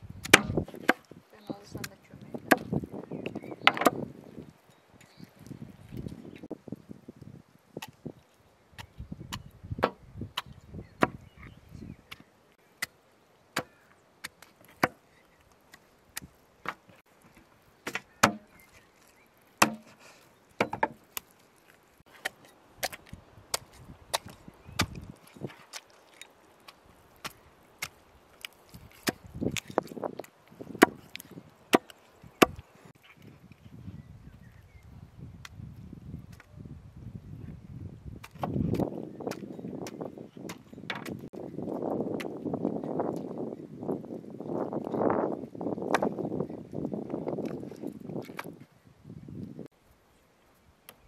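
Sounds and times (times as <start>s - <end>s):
cleavers chopping on wood: 0.2s - 1.1s, 1.8s - 4.1s, 8.8s - 11.2s, 12.8s - 15.0s, 17.8s - 18.6s, 19.6s - 20.0s, 20.6s - 21.0s, 22.1s - 25.8s, 26.7s - 29.8s, 30.7s - 32.6s, 38.2s - 41.4s, 45.9s - 46.2s.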